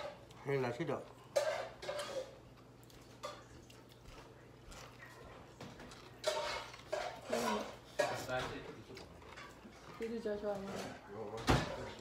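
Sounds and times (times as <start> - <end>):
quiet chewing and clicks: 2.4 - 6.9, 8.8 - 10.0.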